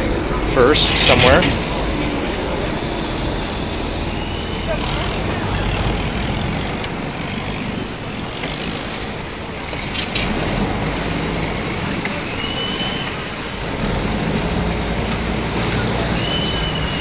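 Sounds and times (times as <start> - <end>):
boat engine running: 0.0 - 17.0
water rushing along hull: 0.0 - 17.0
brief high whistle tone: 12.3 - 13.2, 16.2 - 17.0.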